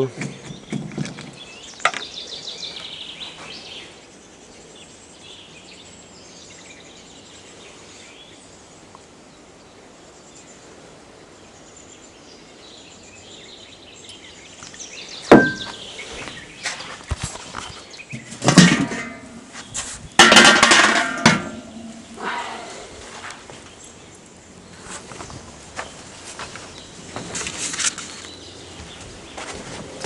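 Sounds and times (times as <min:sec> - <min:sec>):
faint birdsong: 0:00.0 - 0:30.0
metallic clank with ring: 0:15.3 - 0:15.8.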